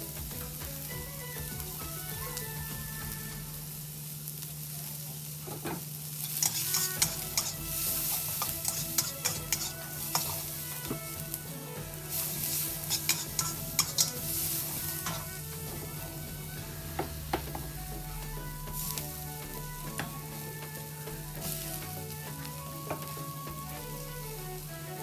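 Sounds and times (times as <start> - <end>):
onions sizzling in a wok: 0.0 - 25.0
metal spatula scraping a wok: 5.4 - 17.6.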